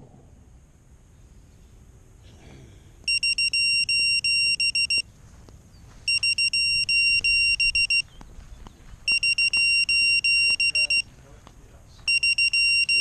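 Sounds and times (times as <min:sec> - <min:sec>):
electronic buzzer beeping: 0:03.1 - 0:05.0, 0:06.1 - 0:08.1, 0:09.1 - 0:11.1, 0:12.0 - 0:13.0.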